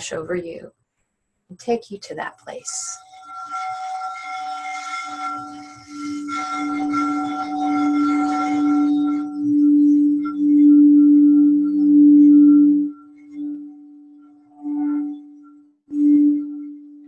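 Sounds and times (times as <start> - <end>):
shimmering high ringing: 2.7 - 17.0
singing bowl low hum: 2.8 - 17.0.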